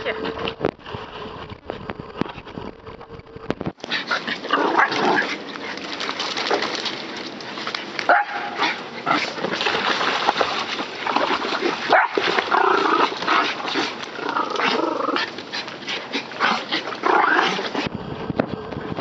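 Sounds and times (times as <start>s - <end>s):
water splashing in a pool: 3.7s - 18.8s.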